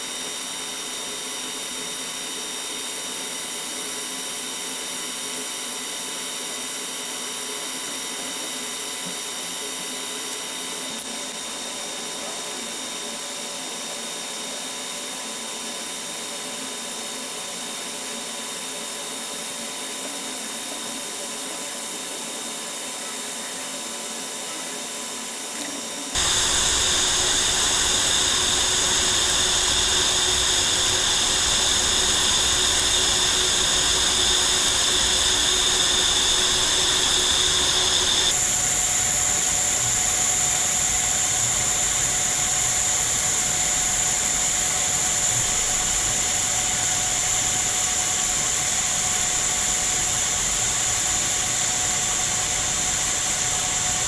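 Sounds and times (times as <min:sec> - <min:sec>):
welding arc hissing: 0:26.2 - 0:54.0.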